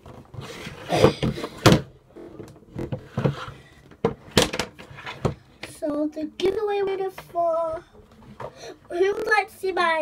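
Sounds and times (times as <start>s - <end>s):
objects knocking and thumping: 0.0s - 5.8s.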